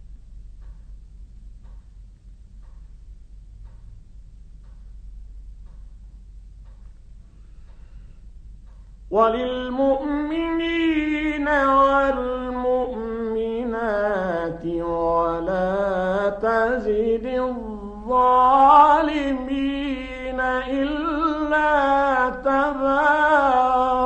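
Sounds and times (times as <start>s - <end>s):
man reciting melodically: 9.1s - 24.0s.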